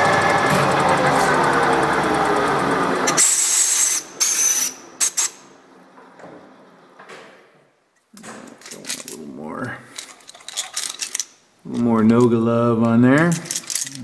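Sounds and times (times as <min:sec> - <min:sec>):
metal lathe running: 0:00.0 - 0:05.4
air blow gun hissing: 0:03.1 - 0:05.4.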